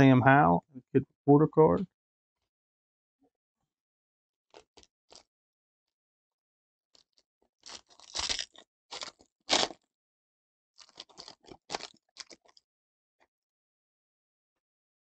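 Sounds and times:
foil wrapper crinkling: 0:07.6 - 0:09.8, 0:10.8 - 0:12.6.

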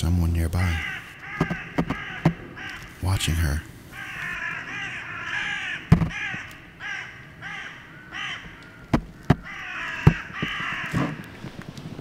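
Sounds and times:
crows cawing: 0:00.3 - 0:11.4
sharp knocks: 0:01.3 - 0:02.6, 0:05.9 - 0:06.4, 0:08.9 - 0:10.7.

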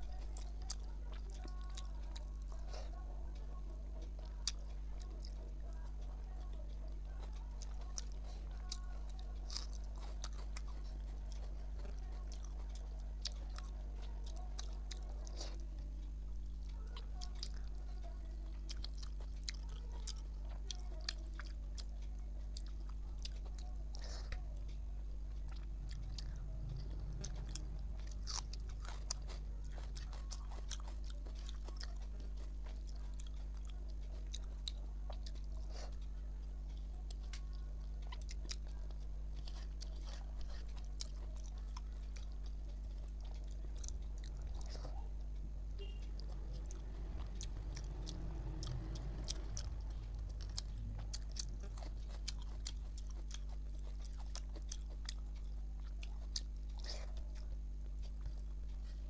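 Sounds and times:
person chewing food: 0:00.0 - 0:59.0
low hum: 0:22.1 - 0:35.7, 0:41.1 - 0:53.9.

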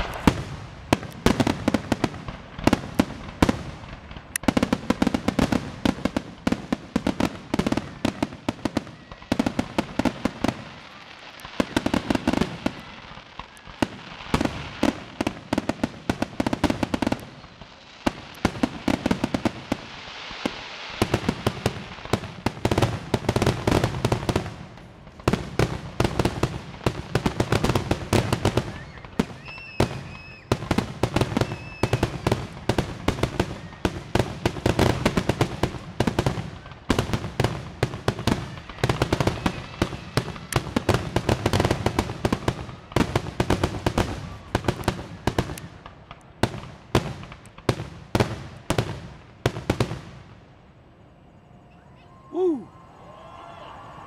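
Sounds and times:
fireworks bursting and crackling: 0:00.0 - 0:54.0
short high whistles: 0:28.7 - 0:30.5, 0:31.4 - 0:32.2.

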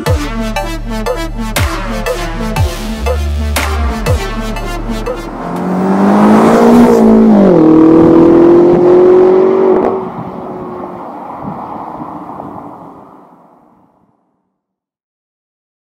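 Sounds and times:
car engine accelerating hard: 0:02.4 - 0:13.8.

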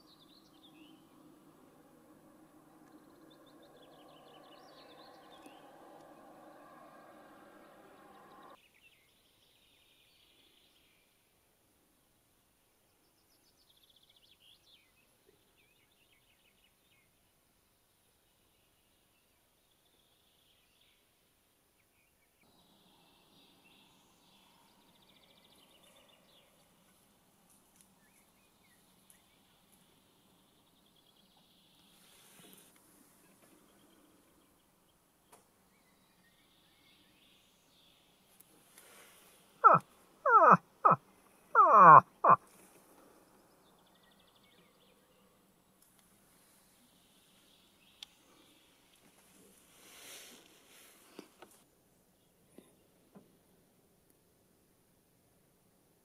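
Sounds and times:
songbird chirps and trills: 0:00.0 - 0:11.2, 0:27.6 - 0:49.0
faint birdsong: 0:00.0 - 0:53.7.

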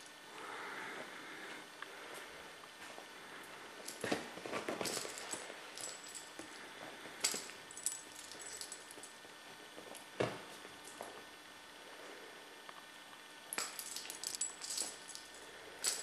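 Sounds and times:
light metallic clinks: 0:04.8 - 0:06.6, 0:07.2 - 0:09.2, 0:13.6 - 0:16.0.

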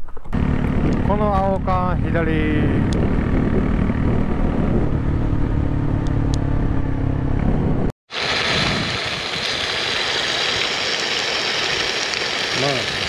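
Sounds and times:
motorcycle engine running: 0:00.3 - 0:07.7
wind rushing over microphone: 0:00.6 - 0:09.8
frying pan hissing: 0:08.1 - 0:13.0.

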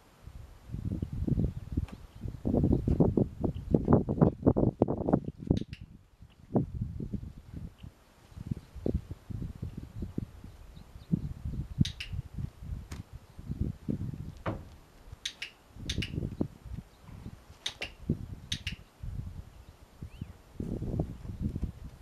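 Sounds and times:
sharp double clicks: 0:05.5 - 0:06.0, 0:11.8 - 0:12.2, 0:15.1 - 0:16.4, 0:17.6 - 0:18.9
horse hooves thudding on trailer floor: 0:14.3 - 0:14.8.

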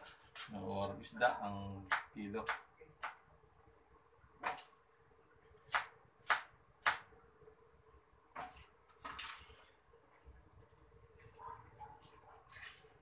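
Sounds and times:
knife chopping on wooden board: 0:01.8 - 0:03.2, 0:05.6 - 0:07.1.

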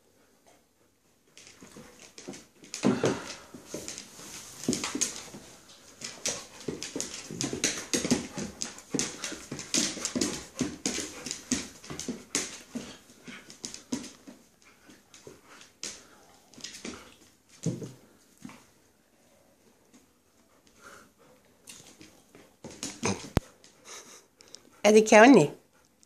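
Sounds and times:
dog claws scrabbling on wood floor: 0:01.3 - 0:18.7.

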